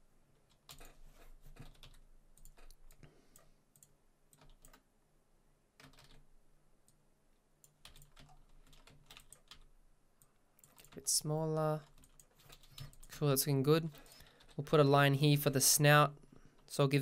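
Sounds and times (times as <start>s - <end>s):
computer mouse clicking: 0.4s - 4.8s, 7.6s - 11.1s, 11.8s - 13.2s
keyboard keys clicking: 0.4s - 4.8s, 5.8s - 6.2s, 7.6s - 9.7s.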